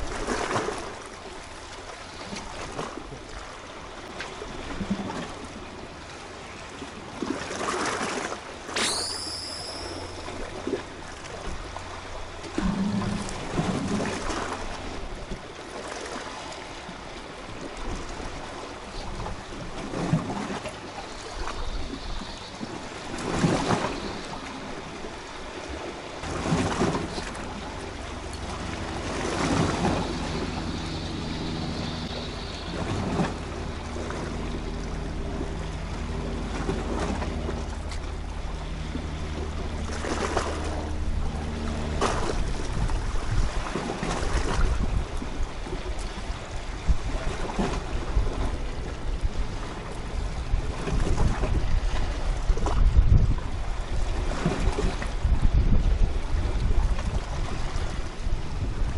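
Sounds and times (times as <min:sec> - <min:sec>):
low steady drone: 0:08.5 - 0:15.6, 0:24.0 - 0:54.3
sea splashing against rocks: 0:26.2 - 0:30.4
wind on microphone: 0:26.2 - 0:58.9.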